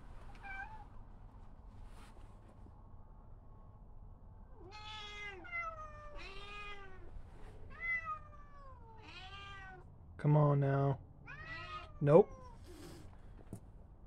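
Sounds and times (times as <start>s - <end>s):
cat yowling: 0.4s - 0.9s, 4.6s - 7.1s, 7.7s - 9.8s, 11.3s - 13.0s.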